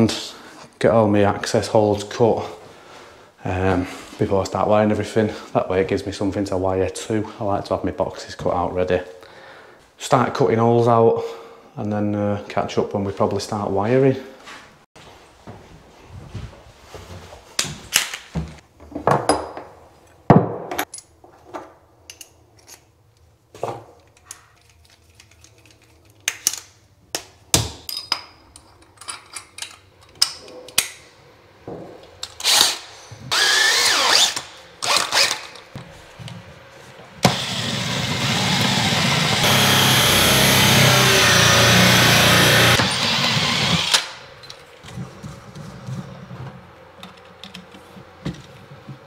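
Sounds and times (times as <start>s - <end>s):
cordless drill cutting chipboard: 32.4s - 35.6s, 37.2s - 44.2s
handling knocks and clicks: 44.4s - 49.0s.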